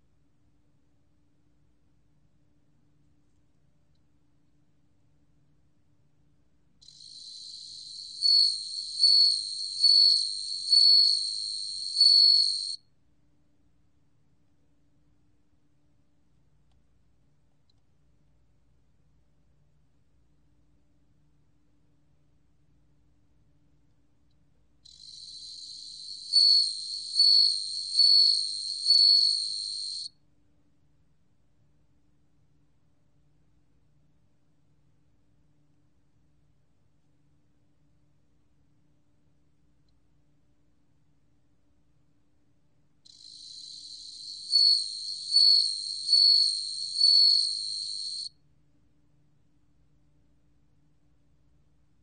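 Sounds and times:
cricket trilling: 6.8s - 12.8s, 24.9s - 30.1s, 43.1s - 48.3s
bell-like cricket notes: 7.0s - 12.8s, 25.0s - 30.1s, 43.2s - 48.3s.

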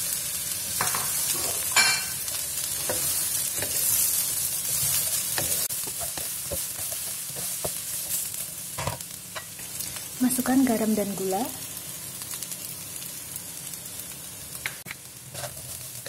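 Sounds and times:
food sizzling in oil: 0.0s - 16.0s
wooden spatula scraping a wok: 2.7s - 8.9s, 15.3s - 16.0s.

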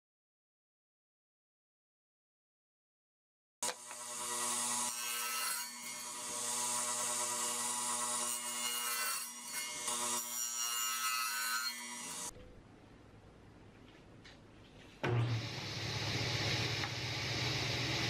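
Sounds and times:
radial arm saw cutting wood: 3.6s - 12.3s.

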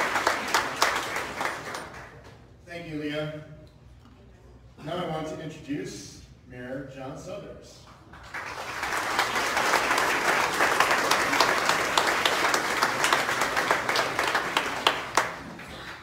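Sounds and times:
audience applause: 0.0s - 2.2s, 8.2s - 16.0s.

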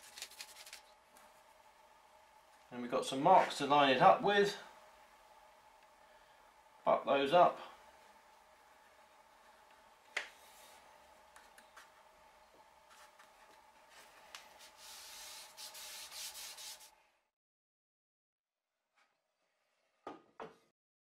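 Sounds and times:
hands rubbing veneer: 14.0s - 16.9s.

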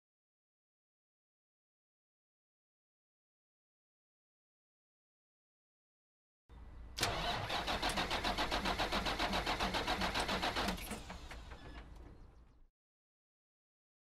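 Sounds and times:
engine cranking without starting: 7.0s - 12.2s.

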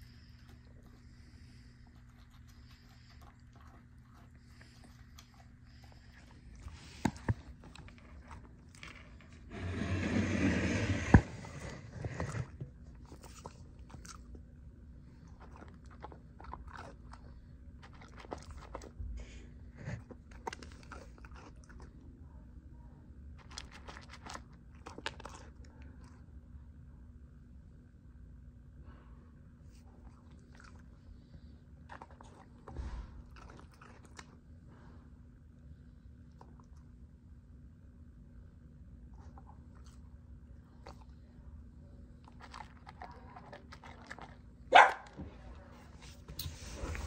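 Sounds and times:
dog crunching dry kibble: 2.0s - 9.5s, 11.4s - 14.5s, 15.1s - 19.0s, 19.8s - 22.0s, 23.3s - 26.2s, 31.8s - 34.5s, 42.1s - 45.2s.

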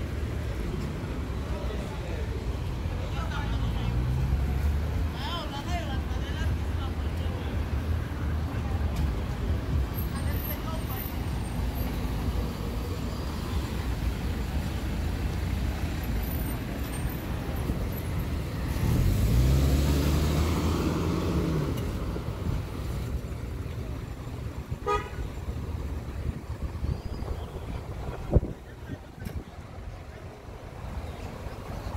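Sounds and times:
traffic engines rumbling: 0.0s - 31.9s
car passing close: 11.4s - 24.2s
car horn toot: 24.8s - 25.3s.

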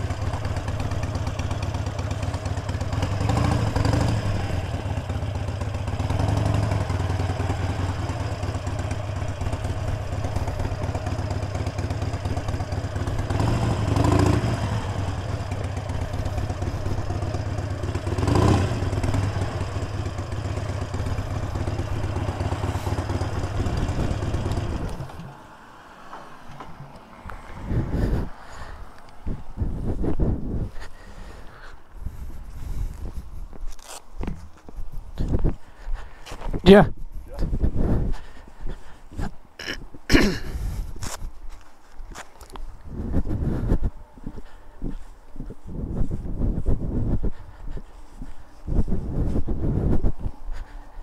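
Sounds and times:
motorcycle engine running: 0.0s - 25.5s
road and wind noise: 0.0s - 51.0s.

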